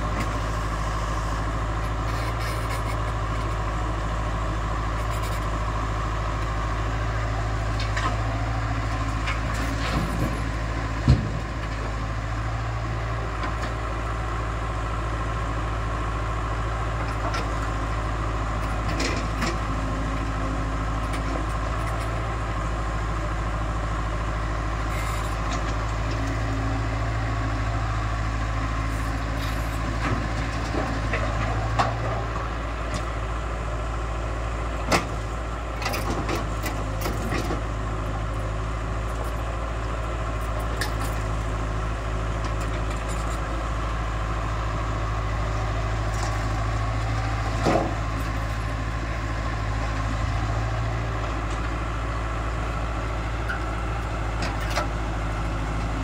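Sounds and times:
excavator diesel engine: 0.0s - 56.0s.

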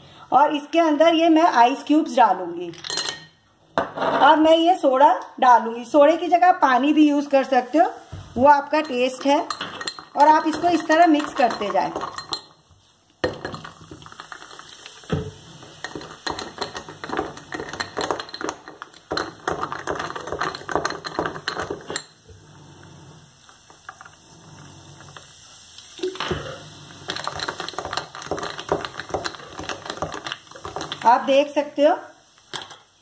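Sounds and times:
spoon clinking ice in glass: 8.8s - 12.6s, 15.8s - 22.1s.

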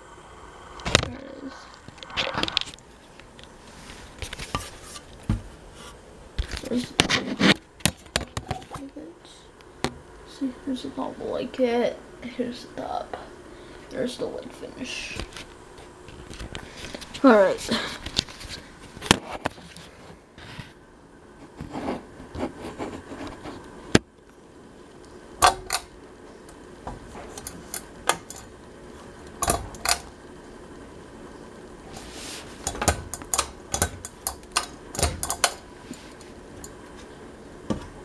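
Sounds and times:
metallic clicks and clinks: 33.1s - 35.6s.

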